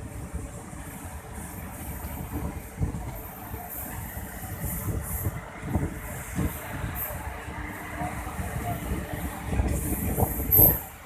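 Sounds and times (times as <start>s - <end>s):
train rumbling: 0.0s - 11.0s
train thumps: 5.6s - 7.0s.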